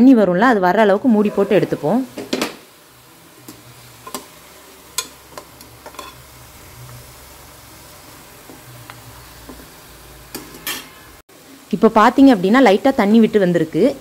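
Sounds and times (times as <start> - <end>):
oil sizzling: 0.0 - 14.0
spatula clinking and scraping metal: 5.0 - 6.3.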